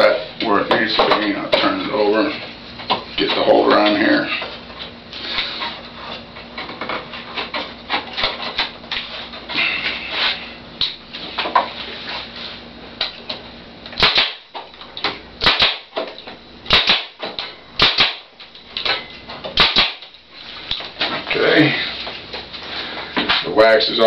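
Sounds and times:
nail gun shots: 0:14.0 - 0:14.5, 0:15.4 - 0:16.1, 0:16.7 - 0:18.3, 0:19.6 - 0:20.1.

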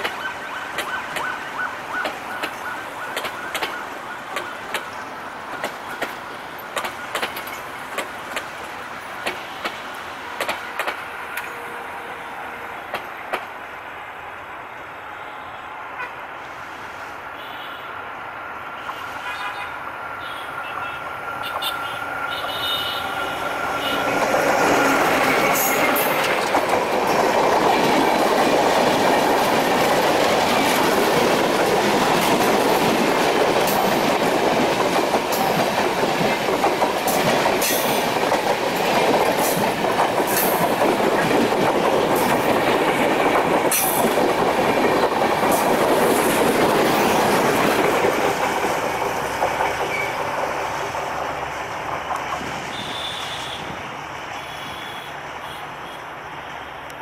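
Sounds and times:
train wheels rushing on rail: 0:00.0 - 0:17.4, 0:18.0 - 0:57.0
diesel locomotive passing: 0:00.0 - 0:57.0
clicks over rail joints: 0:02.0 - 0:11.5.

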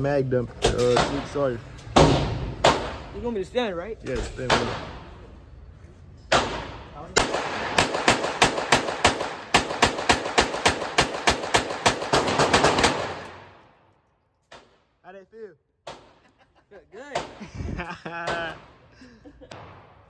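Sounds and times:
pistol shots echoing: 0:06.3 - 0:13.6.

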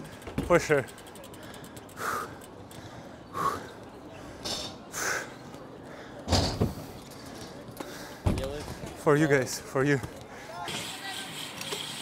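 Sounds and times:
heavy breathing: 0:01.3 - 0:08.9.

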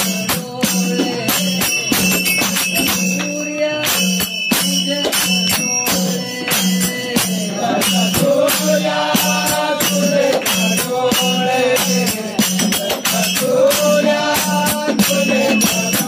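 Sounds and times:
jingling percussion beat: 0:00.0 - 0:16.0.

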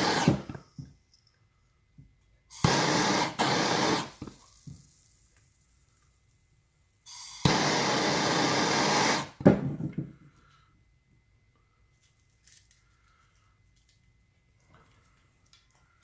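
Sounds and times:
gas torch hissing: 0:00.0 - 0:00.6, 0:02.5 - 0:05.0, 0:07.0 - 0:09.4.

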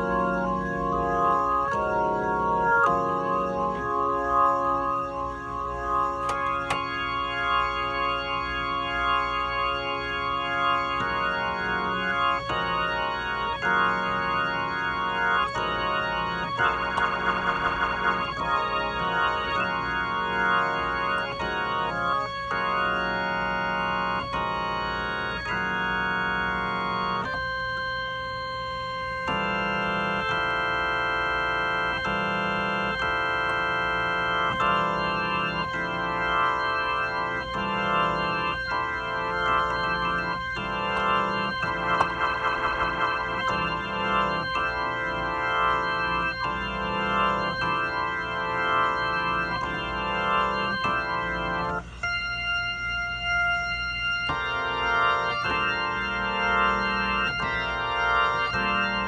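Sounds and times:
organ chords through rotating speaker: 0:00.0 - 0:59.0.

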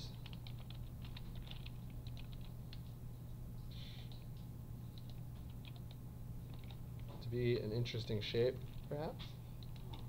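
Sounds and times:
keyboard keys clicking: 0:00.0 - 0:02.8, 0:05.0 - 0:06.8, 0:09.6 - 0:10.0
steady low hum: 0:00.0 - 0:10.0.

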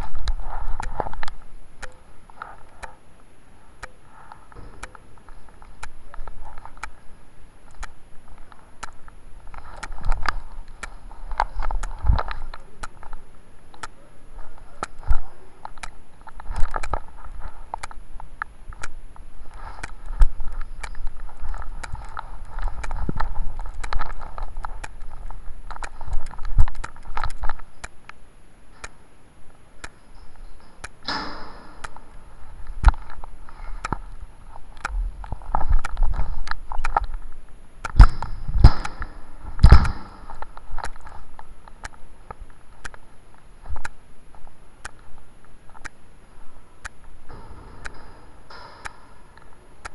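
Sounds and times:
noisy burst: 0:00.0 - 0:49.9.

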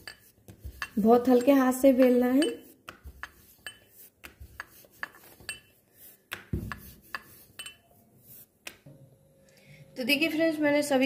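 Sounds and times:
rolling pin clicking on board: 0:02.4 - 0:05.2, 0:06.3 - 0:07.3.

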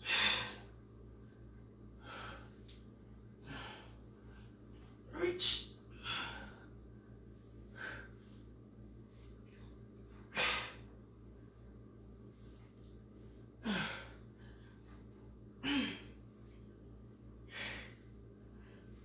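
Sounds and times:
woman grunting: 0:15.6 - 0:16.1.

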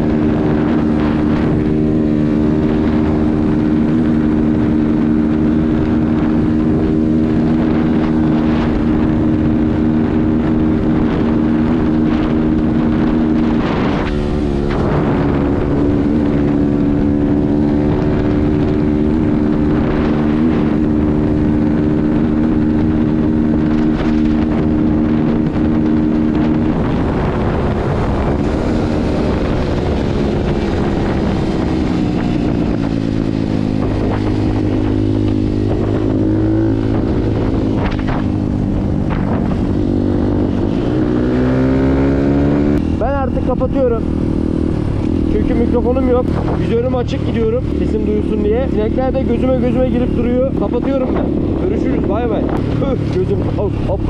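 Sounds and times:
motorcycle engine running: 0:00.0 - 0:54.0
wind noise on microphone: 0:00.0 - 0:54.0.

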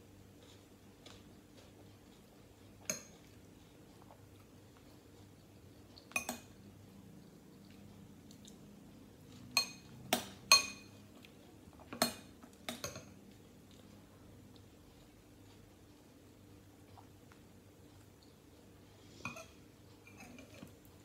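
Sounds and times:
metal spoon clinking ceramic bowl: 0:09.6 - 0:09.9, 0:10.5 - 0:11.0.

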